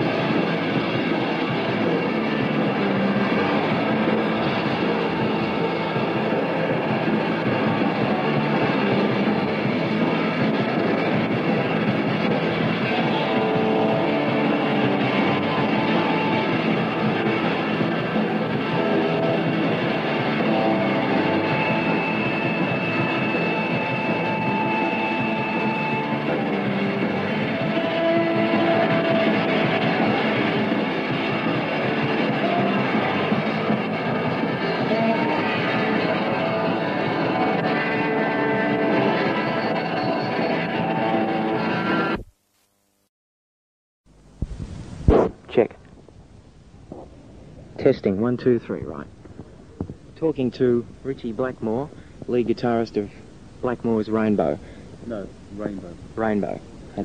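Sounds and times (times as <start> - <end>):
held lead guitar notes: 0.0 - 42.2
rock band music: 0.0 - 42.2.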